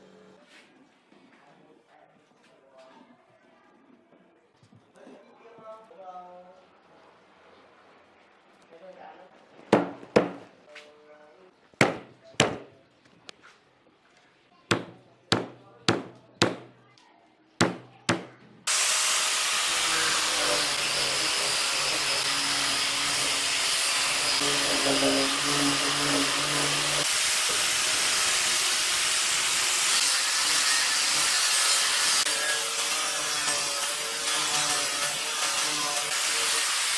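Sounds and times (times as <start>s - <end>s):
sharp knocks: 9.7s - 10.5s, 11.8s - 12.7s, 14.7s - 16.8s, 17.6s - 18.4s
power tool running on wood: 18.7s - 36.9s.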